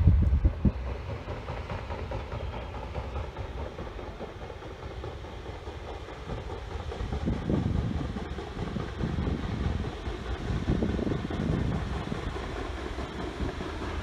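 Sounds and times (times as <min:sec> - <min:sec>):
paddle wheels churning water: 0:00.1 - 0:14.0.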